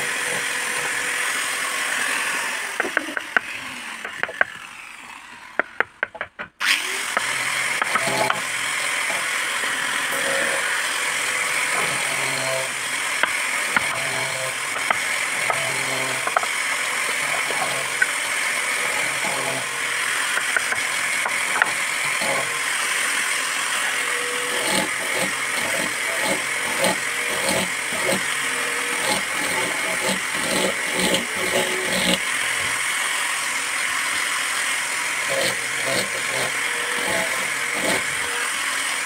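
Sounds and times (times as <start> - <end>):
loud machine noise: 0.0 - 6.0, 6.6 - 39.0
chisel scraping wood: 7.2 - 8.5, 11.7 - 23.1, 24.2 - 32.8, 35.2 - 38.4.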